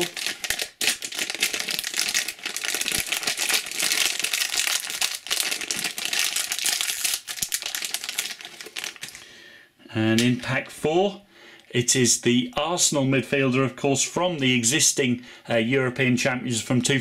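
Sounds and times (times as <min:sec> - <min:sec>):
foil tearing open: 0:00.0 - 0:09.2
foil wrapper crinkling: 0:00.0 - 0:09.2.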